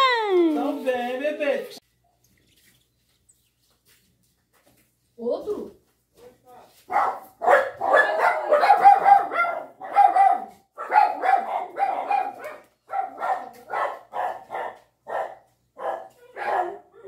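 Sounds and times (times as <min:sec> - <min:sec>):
dog barking: 0:06.9 - 0:17.0.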